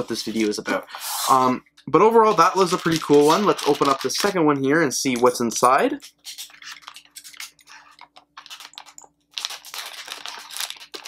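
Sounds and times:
plastic bag crinkling: 2.3 - 4.4, 6.3 - 11.0.

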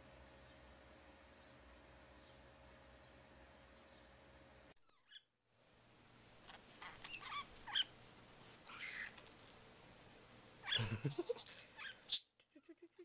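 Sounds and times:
budgerigar chirping: 6.5 - 7.9, 8.7 - 9.2, 10.6 - 10.9.

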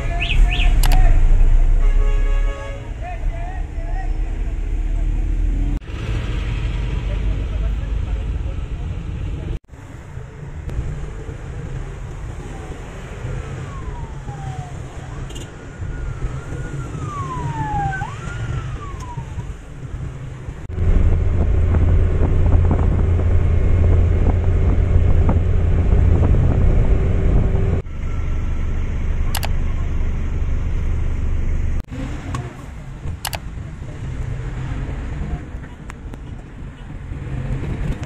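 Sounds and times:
vehicle engine and road noise: 0.0 - 38.0.

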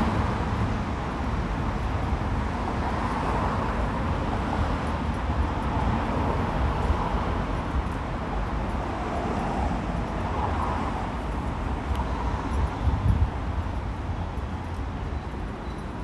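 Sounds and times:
traffic hum: 0.0 - 16.0.

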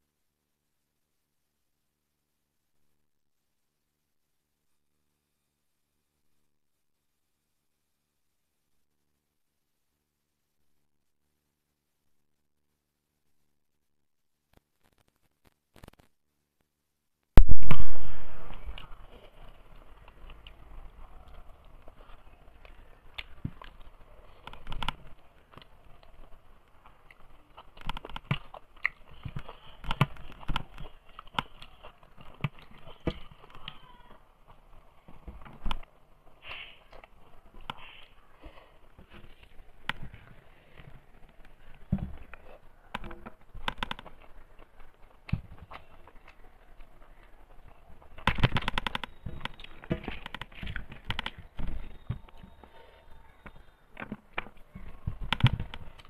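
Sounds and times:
chewing and lip smacking: 18.8 - 33.8.

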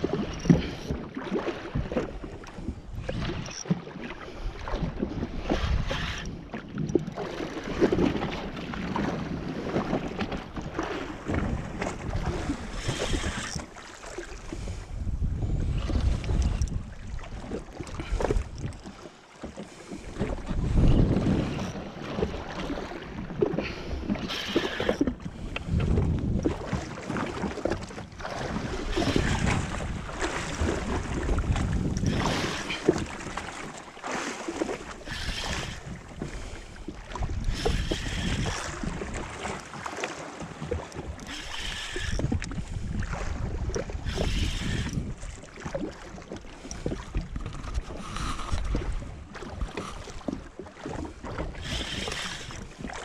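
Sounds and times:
waves splashing against hull: 0.0 - 53.0
wind buffeting microphone: 14.4 - 18.8, 20.0 - 22.4, 23.3 - 33.8, 34.8 - 39.6, 40.7 - 45.9, 46.7 - 53.0.

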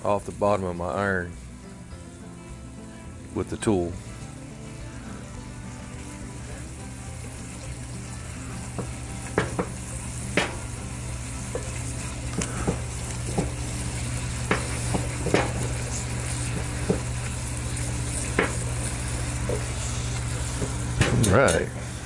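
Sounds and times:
food sizzling in a pot: 0.0 - 22.0
tongs scraping and knocking on pot: 11.5 - 21.8.

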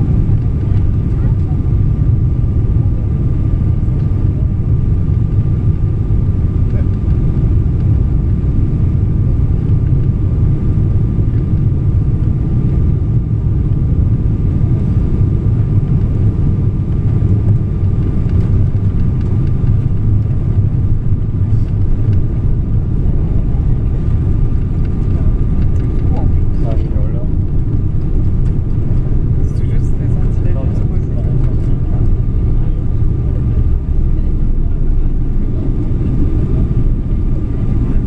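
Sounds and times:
airplane engines rumbling: 0.0 - 38.0
faint steady whine: 0.0 - 38.0
rushing air: 31.3 - 38.0.

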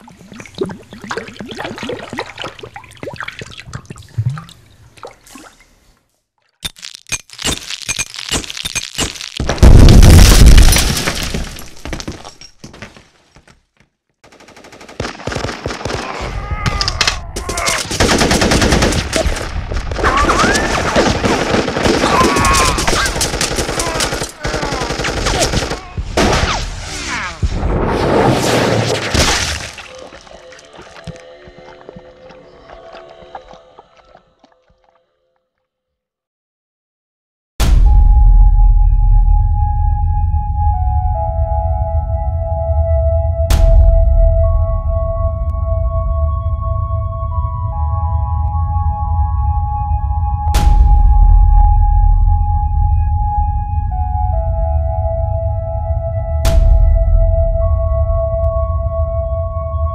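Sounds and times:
liquid splashing and dripping: 0.0 - 5.7
rapid automatic gunfire: 14.2 - 16.0, 17.9 - 20.0, 20.7 - 25.8.

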